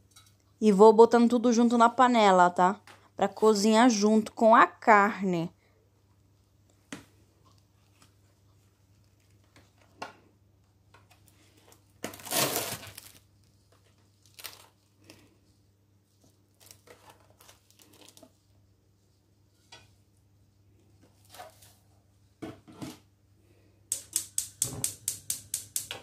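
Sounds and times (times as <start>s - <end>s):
plastic packaging crinkling and tearing: 11.8s - 15.0s, 16.5s - 18.3s.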